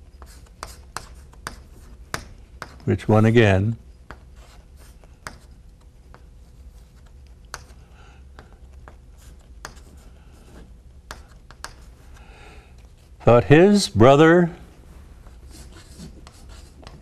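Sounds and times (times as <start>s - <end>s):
chalk scratching on blackboard: 0.1s - 2.9s, 4.1s - 7.9s, 8.8s - 12.2s, 15.2s - 17.0s
chalk tapping on board: 0.1s - 2.9s, 4.0s - 6.3s, 7.0s - 11.9s, 15.5s - 17.0s.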